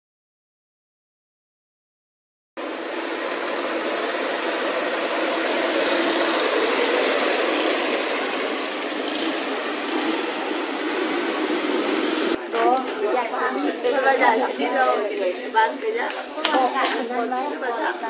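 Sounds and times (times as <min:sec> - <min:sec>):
small engine running: 0:02.6 - 0:12.4.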